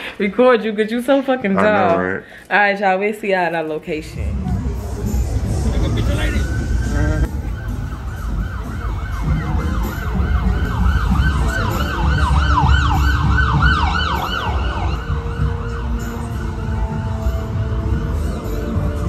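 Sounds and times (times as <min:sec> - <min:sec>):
low traffic rumble: 0:03.9 - 0:19.0
siren yelping: 0:05.4 - 0:19.0.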